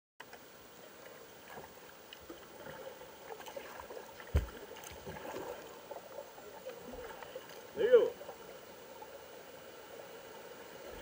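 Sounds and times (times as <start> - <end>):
kayak paddle strokes in water: 0.2 - 8.5.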